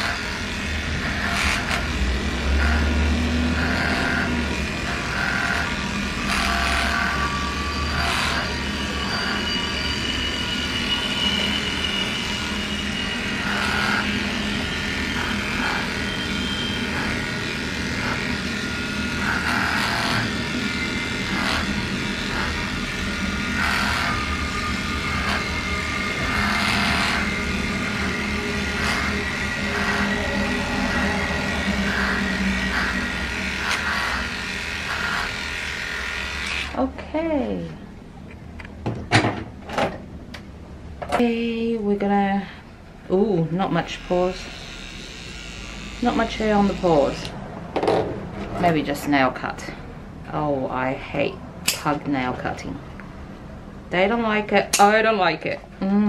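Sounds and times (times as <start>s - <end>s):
electric clippers buzzing: 0.0s - 9.4s, 13.2s - 36.8s, 43.9s - 47.4s.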